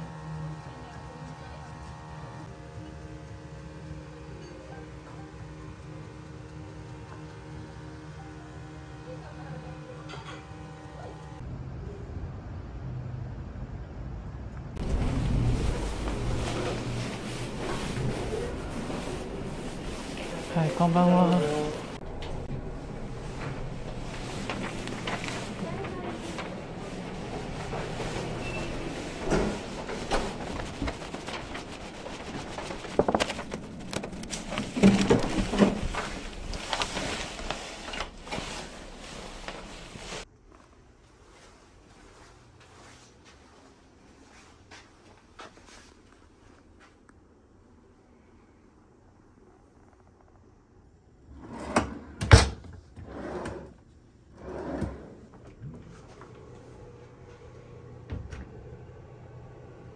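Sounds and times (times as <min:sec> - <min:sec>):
shuffling steps: 0:14.8 - 0:47.1, 0:53.1 - 0:57.8
drawer sliding: 0:51.3 - 0:55.7.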